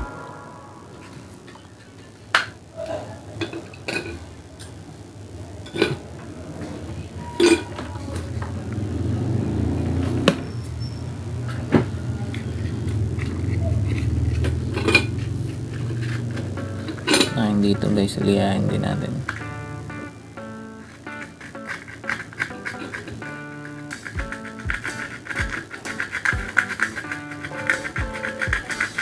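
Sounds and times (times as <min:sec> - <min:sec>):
small metal parts clicking: 0:21.4 - 0:23.1, 0:23.8 - 0:29.0
sanding sponge rubbing: 0:24.0 - 0:29.0.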